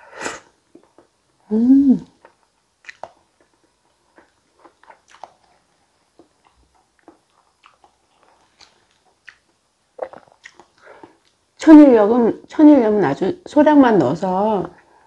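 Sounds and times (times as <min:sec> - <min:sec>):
person chewing with mouth clicks: 0:02.0 - 0:11.4.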